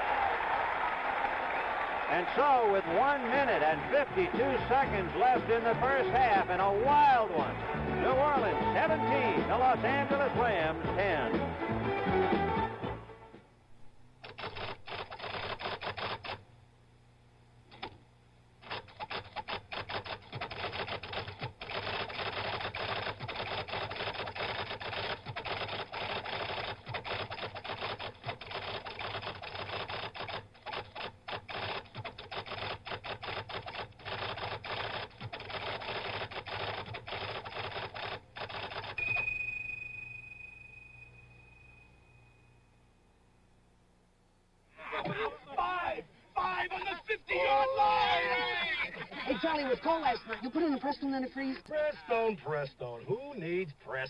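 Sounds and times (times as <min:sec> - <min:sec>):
electric typewriter typing: 0:14.2 - 0:16.4, 0:18.6 - 0:39.0.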